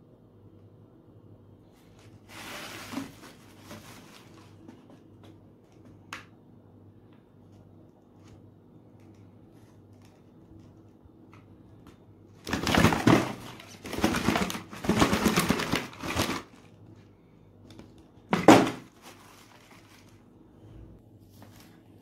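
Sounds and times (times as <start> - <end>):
plastic tubes crinkling: 12.4 - 16.9, 17.7 - 20.3.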